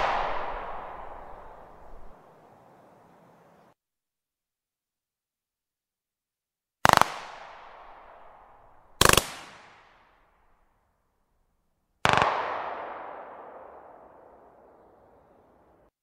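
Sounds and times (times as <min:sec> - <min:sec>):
pistol shots with echo: 0:00.0 - 0:02.1, 0:12.0 - 0:14.5.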